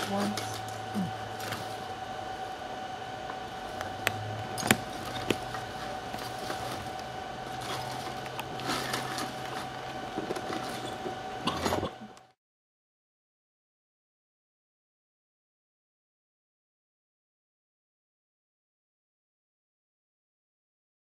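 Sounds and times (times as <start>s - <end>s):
steady background hum: 0.0s - 12.4s
light scraping and rustling: 5.0s - 11.8s.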